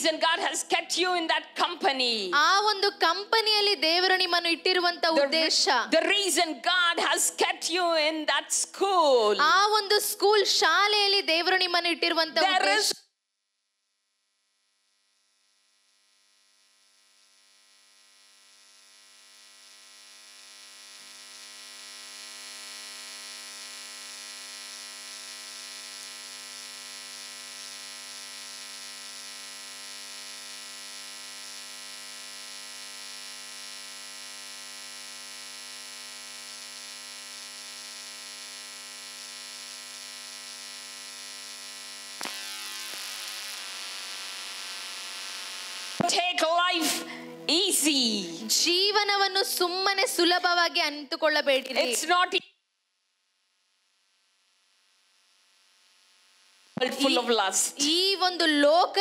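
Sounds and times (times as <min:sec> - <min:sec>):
electronic drone: 0:35.0 - 0:46.0.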